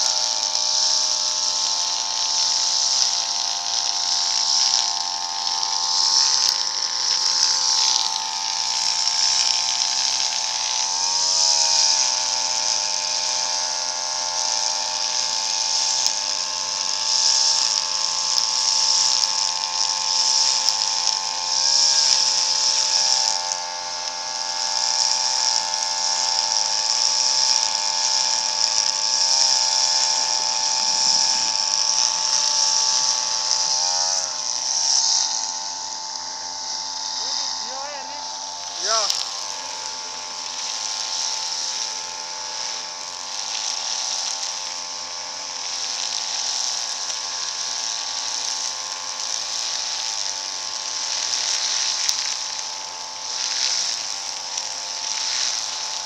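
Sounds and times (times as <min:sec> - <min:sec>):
brush cutter engine running: 0:00.0 - 0:56.0.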